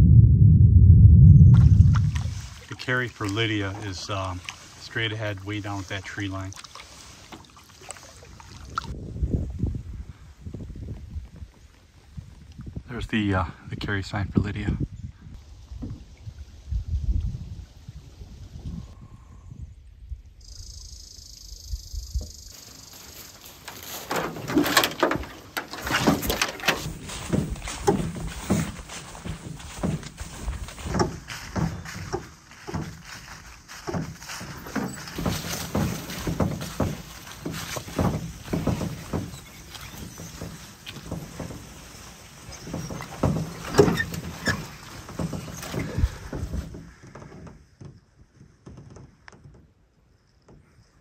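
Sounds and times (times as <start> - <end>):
footsteps crunching dry leaves: 2.1 - 2.7, 22.5 - 24.6, 26.8 - 42.6
rustling: 22.5 - 47.3.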